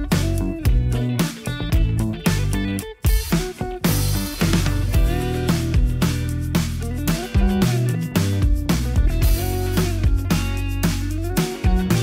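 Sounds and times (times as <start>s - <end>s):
instrumental guitar music: 0.0s - 12.0s.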